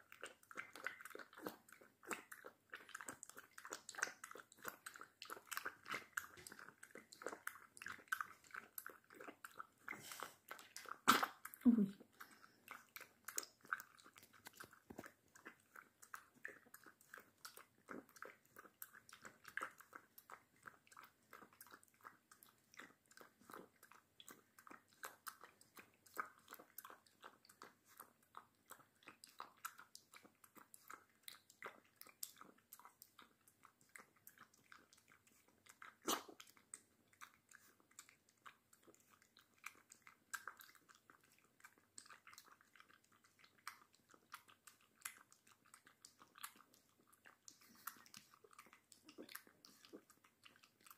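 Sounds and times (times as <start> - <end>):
puppy lapping milk: 0.0 - 50.9
puppy slurp: 0.0 - 50.9.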